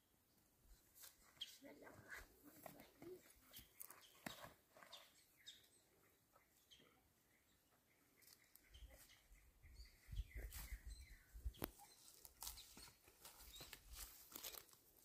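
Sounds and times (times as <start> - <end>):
faint bird chirps: 3.0 - 13.8.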